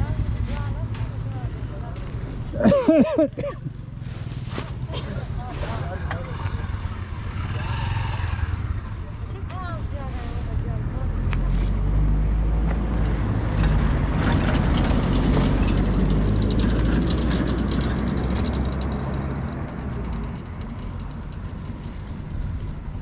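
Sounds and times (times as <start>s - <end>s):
motorcycle engines rumbling: 0.0s - 23.0s.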